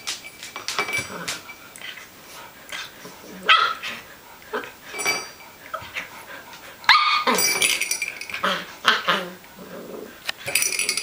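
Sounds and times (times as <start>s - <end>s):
puppy barking high-pitched: 3.5s - 3.9s, 6.9s - 7.4s.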